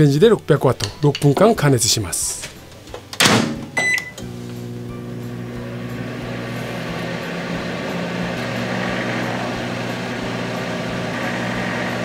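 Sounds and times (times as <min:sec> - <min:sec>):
microwave oven humming: 0:03.8 - 0:12.0.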